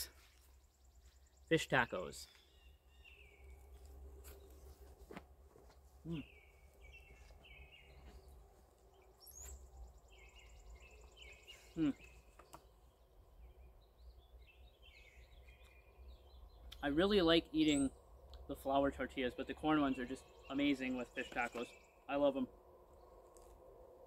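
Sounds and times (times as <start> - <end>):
songbirds singing: 0.0 - 24.0
man humming with enjoyment: 6.0 - 6.3, 11.7 - 12.0.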